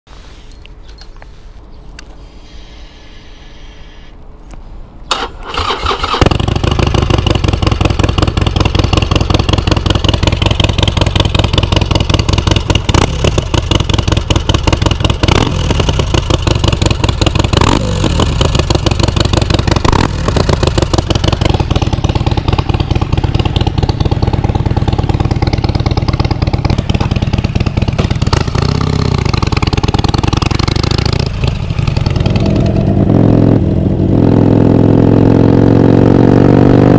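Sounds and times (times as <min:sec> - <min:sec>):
motorcycle starter cranking: 0:05.1 - 0:06.6
motorcycle engine idling loudly: 0:06.1 - 0:34.4.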